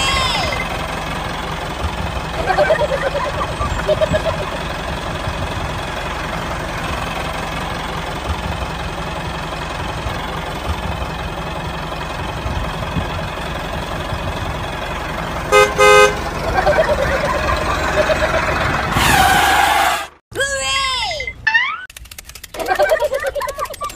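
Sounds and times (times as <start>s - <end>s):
tractor engine running: 0.0s - 20.2s, 21.9s - 23.9s
horn toot: 15.5s - 16.4s, 18.9s - 20.2s.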